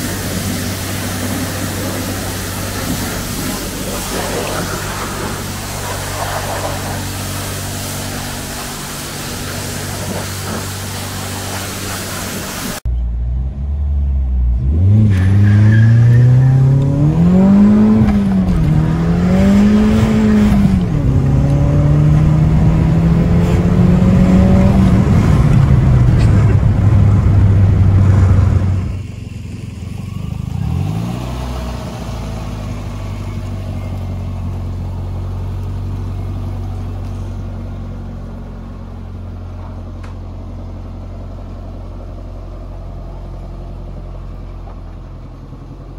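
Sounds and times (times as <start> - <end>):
pressure washer spray: 0.0 - 12.8
car engine idling: 0.0 - 14.6, 24.9 - 45.9
car engine accelerating: 12.7 - 45.9.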